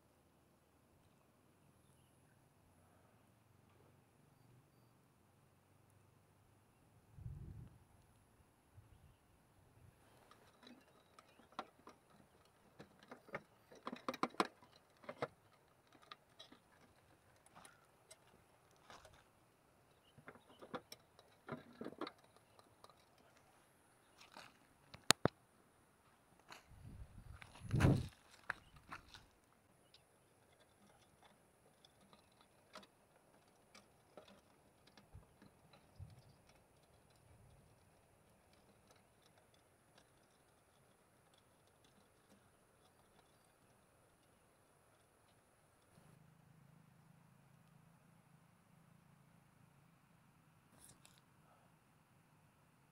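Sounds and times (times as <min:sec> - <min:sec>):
faint small clicks and taps: 0:19.9 - 0:25.4.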